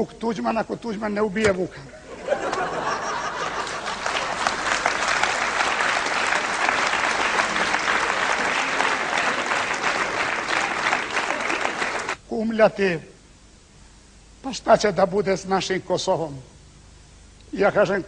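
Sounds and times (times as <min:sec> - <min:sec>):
audience applauding: 0:02.6 - 0:12.2.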